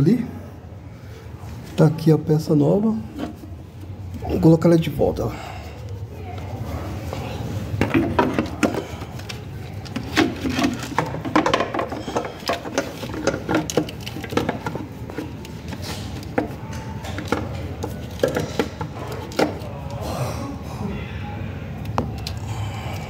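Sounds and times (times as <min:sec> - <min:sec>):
steady low hum: 0:00.0 - 0:23.0
knocks and scrapes on car parts: 0:07.8 - 0:09.1, 0:09.9 - 0:19.6.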